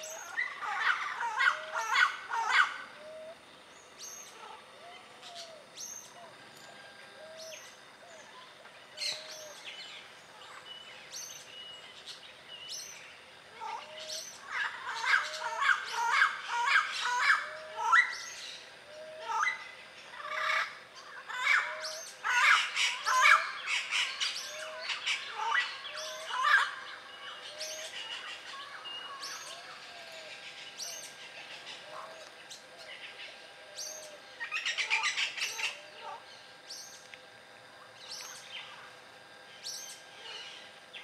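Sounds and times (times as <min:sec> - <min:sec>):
parrots calling: 0:00.0 - 0:03.3, 0:13.6 - 0:37.0.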